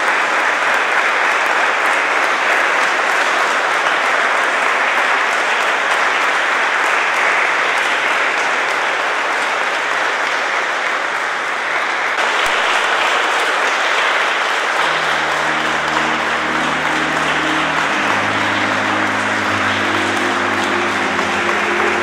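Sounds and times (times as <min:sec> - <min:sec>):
audience applauding: 0:00.0 - 0:22.0
low held music chords: 0:14.8 - 0:22.0.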